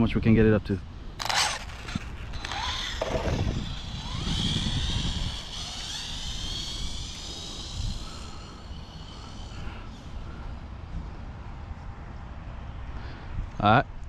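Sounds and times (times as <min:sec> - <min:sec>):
wind: 0:00.0 - 0:14.0
electric motor whine: 0:01.2 - 0:10.5.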